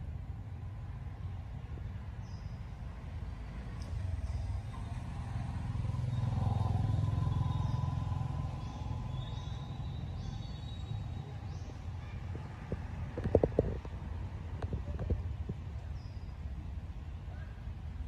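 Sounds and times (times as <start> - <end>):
vehicle engine passing by: 3.0 - 13.2.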